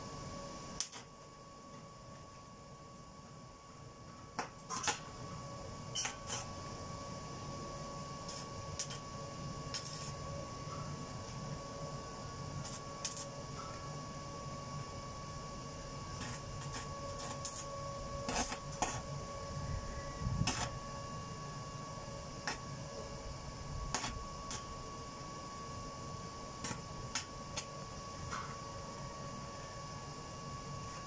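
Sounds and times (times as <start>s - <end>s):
steady high whine: 0.0s - 31.0s
welding electrode clicks and pops: 0.8s - 1.1s, 4.3s - 5.1s, 5.9s - 6.6s, 8.2s - 9.1s, 9.7s - 10.2s, 12.6s - 13.9s, 16.2s - 19.1s, 20.4s - 20.8s, 22.4s - 22.7s, 23.9s - 24.7s, 26.6s - 28.6s.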